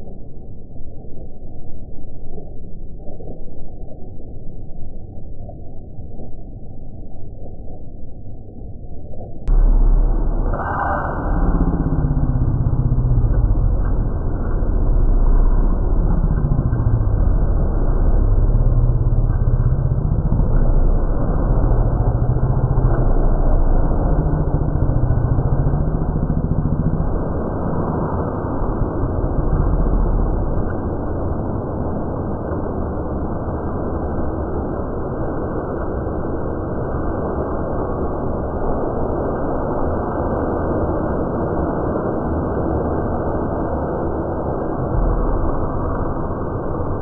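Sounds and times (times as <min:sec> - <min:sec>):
deep steady drone: 0:00.0 - 0:47.0
low rushing wind rumble: 0:09.4 - 0:47.0.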